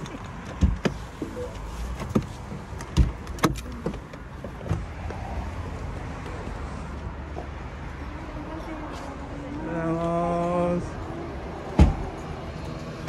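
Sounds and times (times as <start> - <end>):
car door handle and latch clicks: 0.0 - 4.8.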